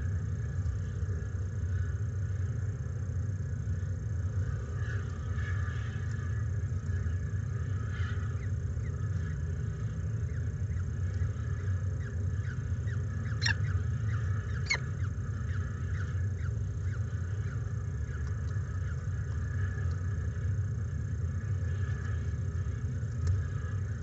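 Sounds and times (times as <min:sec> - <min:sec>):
steady low hum: 0:00.0 - 0:24.0
falcon chick cheeping: 0:13.2 - 0:13.8, 0:14.5 - 0:14.9.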